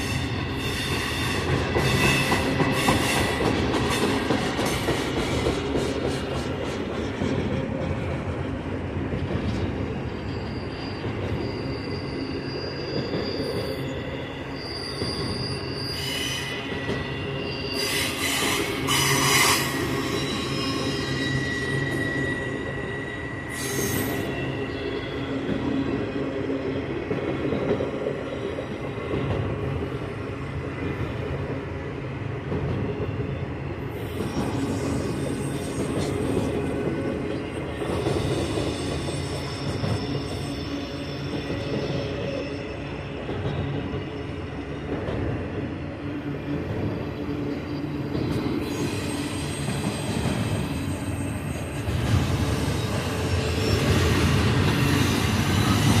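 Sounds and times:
train wheels rumbling on rail: 0.0 - 56.0
high-pitched wheel squeals: 10.0 - 25.4, 37.6 - 43.1, 47.8 - 56.0.

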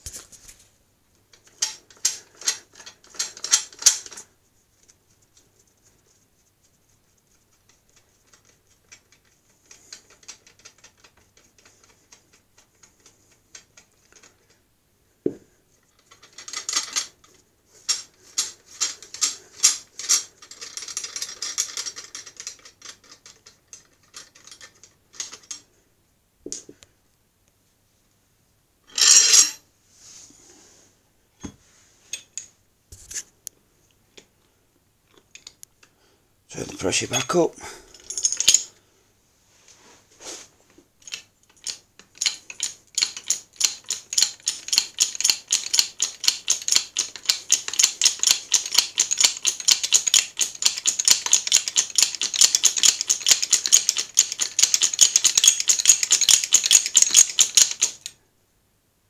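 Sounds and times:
metal parts clicking and clattering: 1.4 - 4.3, 7.7 - 14.5, 16.0 - 17.3, 17.9 - 25.6, 37.0 - 38.7, 41.0 - 58.2.

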